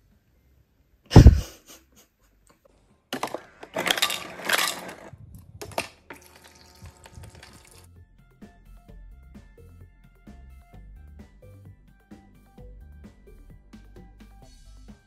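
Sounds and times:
ice cubes clattering into plastic tumbler: 3.2s - 7.9s.

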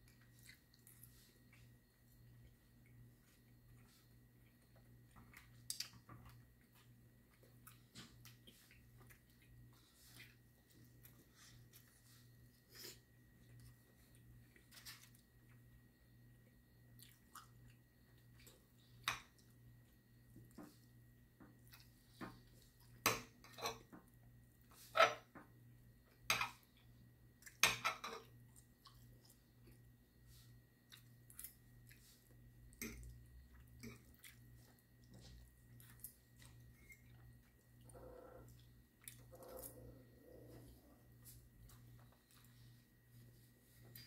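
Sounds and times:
person chewing: 0.0s - 15.7s, 16.7s - 20.6s, 28.3s - 42.6s
faint steady hum: 0.0s - 44.0s.

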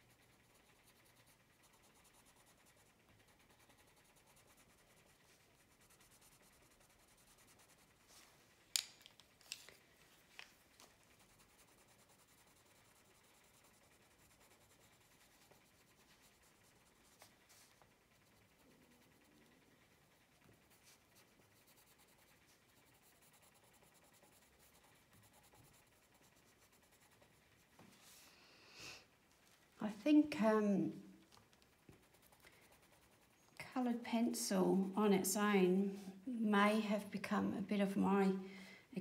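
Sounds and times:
pencil strokes on paper: 0.0s - 8.5s, 10.7s - 28.3s, 31.9s - 34.0s
pencils clacking together: 8.8s - 9.8s.

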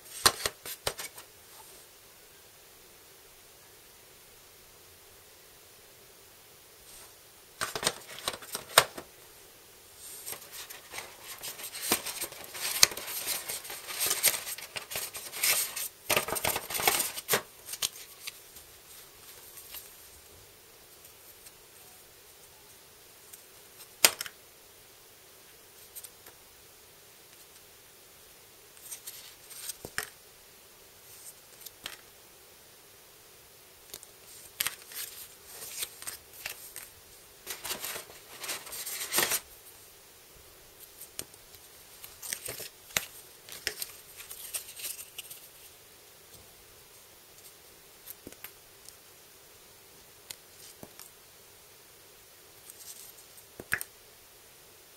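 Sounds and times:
game cards rustling: 0.1s - 1.3s, 7.0s - 9.1s, 10.0s - 20.1s, 34.3s - 39.5s, 40.9s - 45.7s.

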